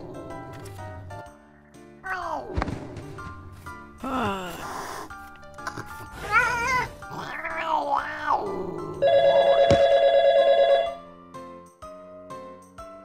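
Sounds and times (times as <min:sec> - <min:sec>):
background music: 0:00.0 - 0:13.0
cartoon cat meowing: 0:06.2 - 0:08.5.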